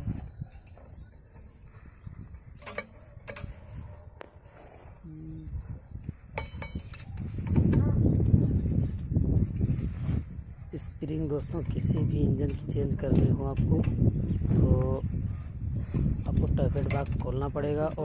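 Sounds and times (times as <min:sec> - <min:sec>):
crickets chirring: 0:00.0 - 0:18.0
spanner clicking on metal nuts: 0:02.5 - 0:03.5, 0:06.3 - 0:07.8, 0:11.6 - 0:14.2, 0:16.2 - 0:18.0.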